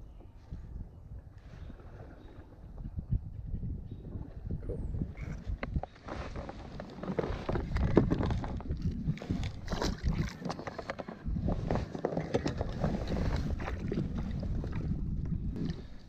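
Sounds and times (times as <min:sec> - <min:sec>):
wind rumble on microphone: 0:00.0 - 0:16.0
rope knocking and scraping on boat: 0:05.4 - 0:15.9.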